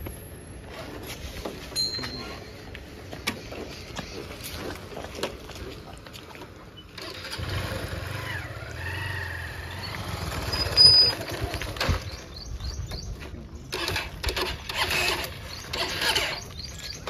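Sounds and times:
motorcycle starter cranking: 0:07.0 - 0:08.9, 0:13.7 - 0:16.7
motorcycle engine bursts: 0:07.0 - 0:12.5, 0:13.7 - 0:16.6
birds chirping: 0:09.0 - 0:17.0.

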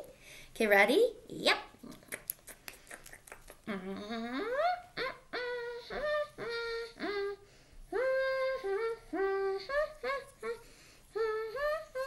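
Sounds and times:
woman humming a tune: 0:02.8 - 0:12.0.

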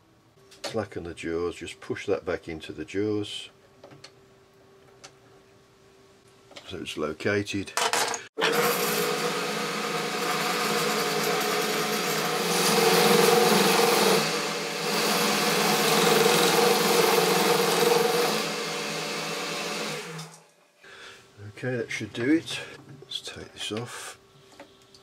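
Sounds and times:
lathe tool cutting metal: 0:08.4 - 0:20.3
lathe humming: 0:08.4 - 0:20.4.

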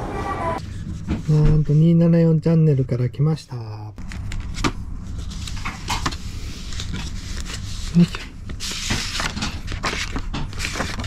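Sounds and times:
paper and plastic rustling: 0:04.0 - 0:11.0.

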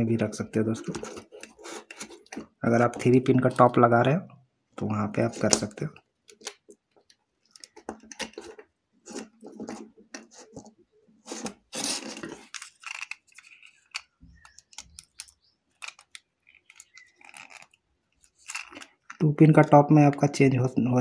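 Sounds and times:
wires rattling: 0:11.3 - 0:19.2.

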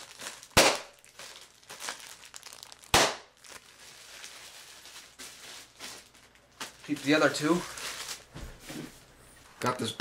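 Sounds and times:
bubble wrap bursting pop: 0:00.0 - 0:07.0
plastic crinkling: 0:00.0 - 0:08.8.

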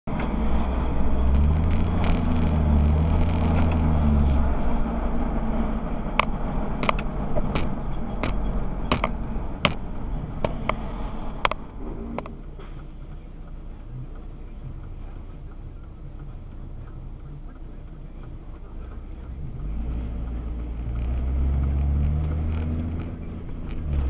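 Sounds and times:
car engine: 0:00.0 - 0:24.0
tyre noise: 0:00.1 - 0:12.9, 0:19.4 - 0:24.0
sharp ticks: 0:06.1 - 0:24.0.

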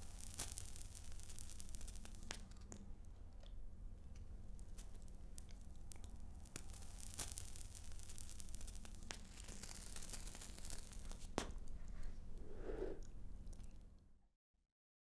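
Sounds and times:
cigarette tip crackling: 0:04.6 - 0:11.7.

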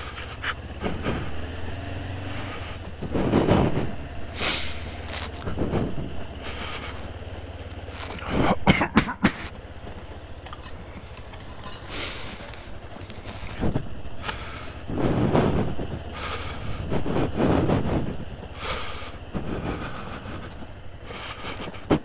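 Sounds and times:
breaths: 0:00.0 - 0:08.6, 0:10.6 - 0:22.0
motorcycle engine idling: 0:00.0 - 0:22.0
person coughing: 0:08.2 - 0:09.5.

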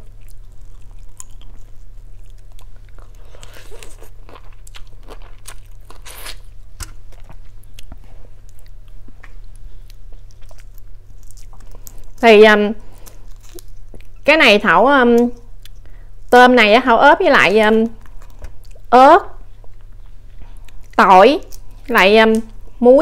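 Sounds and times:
biting and chewing: 0:00.0 - 0:12.2
steady low hum: 0:00.0 - 0:23.0.

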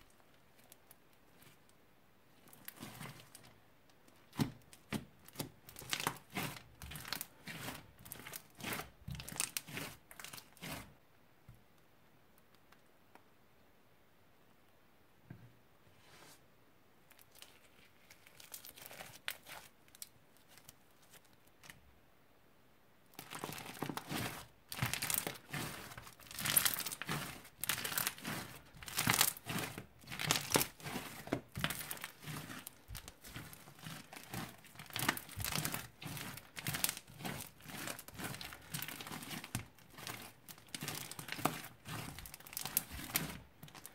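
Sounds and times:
hands crunching beaded slime: 0:04.2 - 0:10.9, 0:17.4 - 0:19.7, 0:23.2 - 0:43.9
faint soft clicks: 0:11.5 - 0:13.3.

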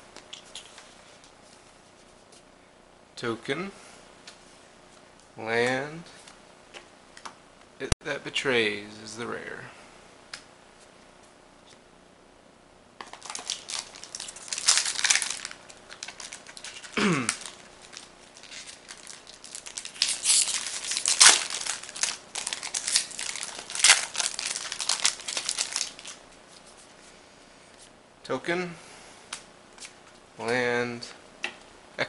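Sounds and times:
foil wrapper crinkling and tearing: 0:13.0 - 0:26.7.

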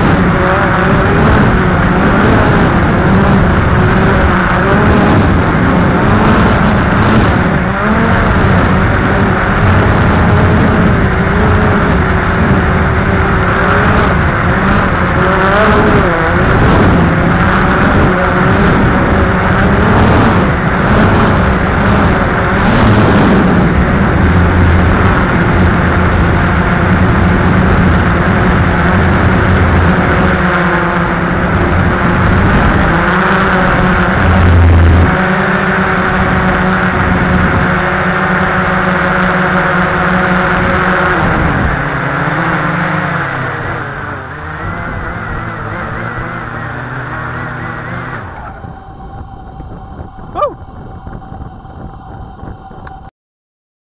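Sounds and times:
quadcopter motors droning: 0:00.0 - 0:53.1.

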